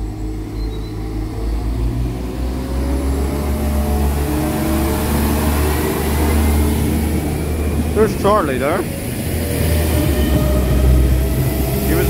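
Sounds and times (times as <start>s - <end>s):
diesel train engine pulling away: 0.0s - 12.0s.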